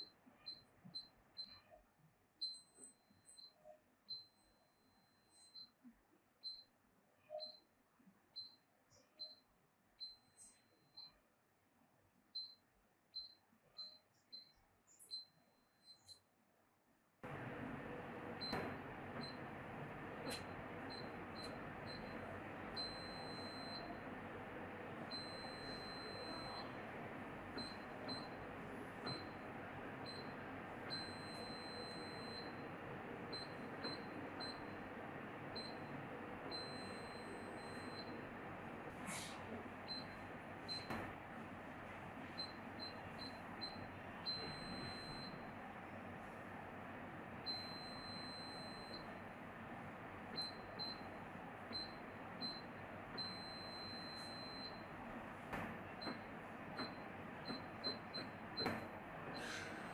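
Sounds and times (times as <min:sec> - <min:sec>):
keypad lock beeping: 0:25.1 - 0:26.8.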